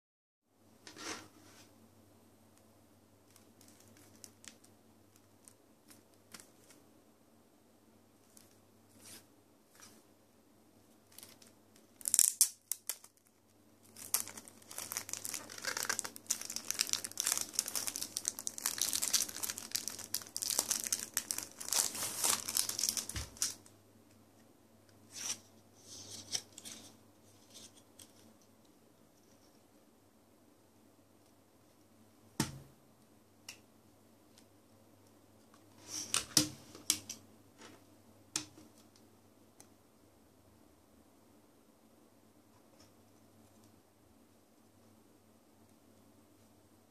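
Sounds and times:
plastic wrap crinkling: 0:03.3 - 0:06.8, 0:11.0 - 0:23.7
plastic wrap ripping: 0:11.2 - 0:23.6.

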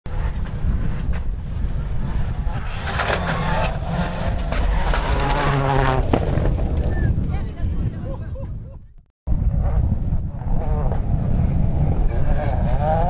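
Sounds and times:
rally car engine revving: 0:00.1 - 0:06.7, 0:09.4 - 0:13.0
low rumble: 0:00.1 - 0:12.8.

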